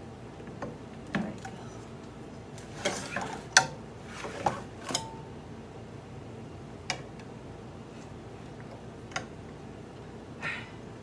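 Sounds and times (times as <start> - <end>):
metallic ring: 4.9 - 5.3.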